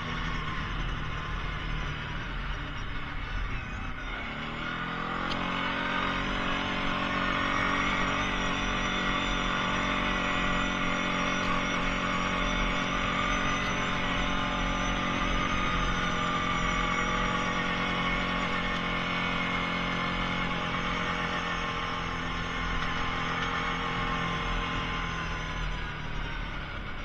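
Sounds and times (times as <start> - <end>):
atv engine revving: 0.0 - 27.0.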